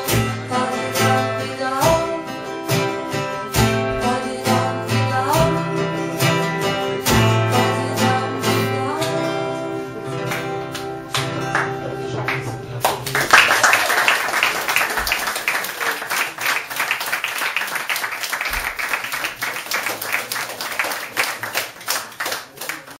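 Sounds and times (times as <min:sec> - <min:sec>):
audience applauding: 0:10.2 - 0:23.0.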